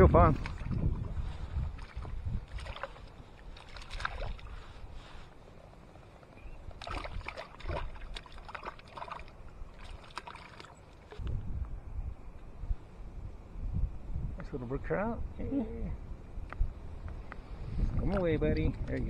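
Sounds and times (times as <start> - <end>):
shallow water splashing: 0.0 - 5.3, 6.6 - 11.3.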